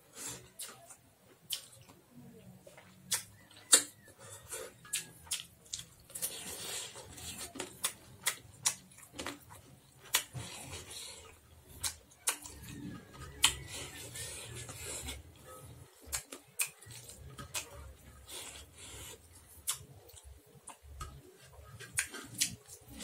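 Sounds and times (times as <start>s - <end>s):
person chewing food: 0.1s - 2.0s, 2.6s - 23.0s
lip smacks and mouth clicks: 2.8s - 4.0s, 11.7s - 12.7s, 16.0s - 17.7s, 19.6s - 21.2s, 21.8s - 22.9s.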